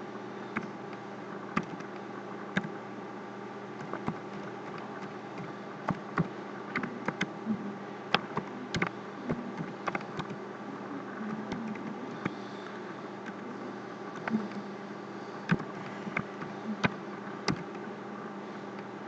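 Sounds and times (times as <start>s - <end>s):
steady electrical hum: 0.0s - 19.0s
keyboard key clicks: 1.6s - 1.9s, 8.2s - 8.9s, 9.6s - 10.4s, 15.5s - 17.7s.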